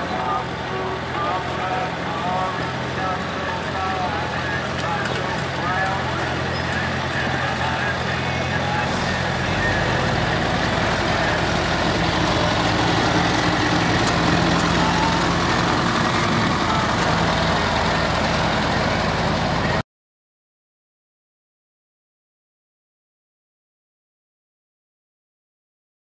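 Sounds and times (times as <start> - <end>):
tractor engine running: 0.0 - 19.8.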